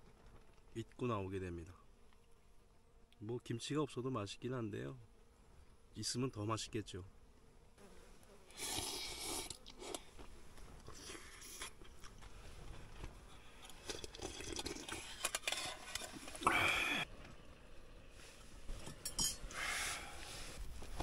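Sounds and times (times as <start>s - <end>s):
person slurping and chewing: 8.5s - 10.2s, 10.8s - 12.2s, 13.6s - 17.0s.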